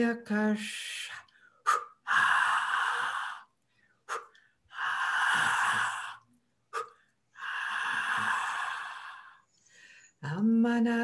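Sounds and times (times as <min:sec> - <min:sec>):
sharp in-breath: 0:01.4 - 0:10.2.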